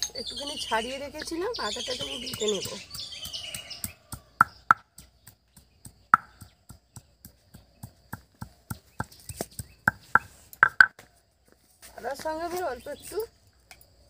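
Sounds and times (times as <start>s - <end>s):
stone pounder knocking on wood: 1.9s - 9.2s, 9.8s - 10.9s.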